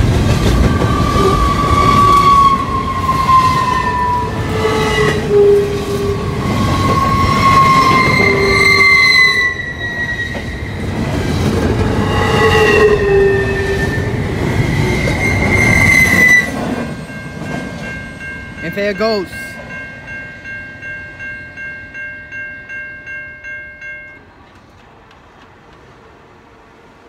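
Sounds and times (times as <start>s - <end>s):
train wheels rumbling on rail: 0.0s - 18.6s, 24.1s - 27.0s
high wheel squeal: 0.8s - 11.0s, 11.9s - 17.4s.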